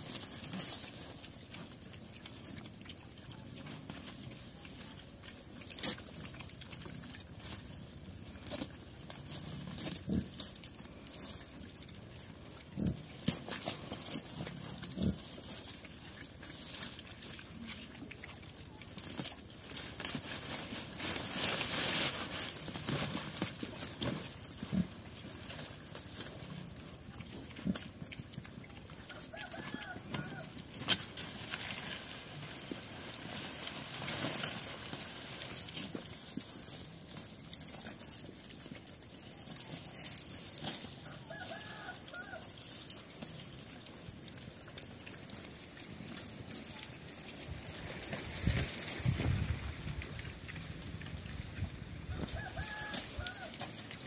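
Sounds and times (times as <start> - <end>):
leaf rustle: 0.0 - 54.0
pigs chewing leaves: 0.0 - 54.0
faint rooster crowing: 29.0 - 30.6, 41.0 - 42.6, 52.0 - 53.8.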